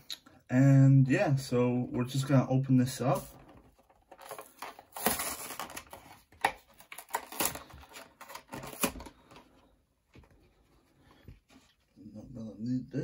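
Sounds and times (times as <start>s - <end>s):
plastic blister tearing off card: 4.2s - 9.2s.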